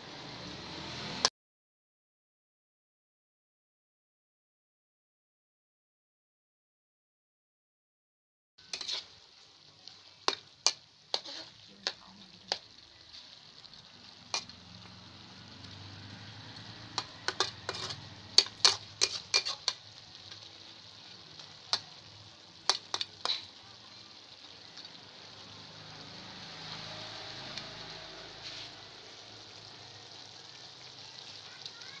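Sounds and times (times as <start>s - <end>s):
food sizzling in a wok: 0.0s - 1.3s, 8.6s - 32.0s
spatula scraping a pan: 8.6s - 14.7s, 16.8s - 21.9s, 22.6s - 24.9s, 26.4s - 29.0s.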